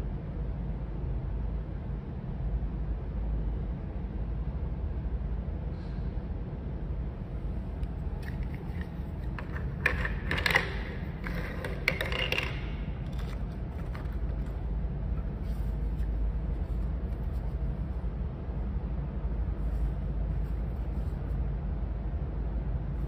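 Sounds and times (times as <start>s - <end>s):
toy pieces clicking and scraping: 8.2s - 14.5s.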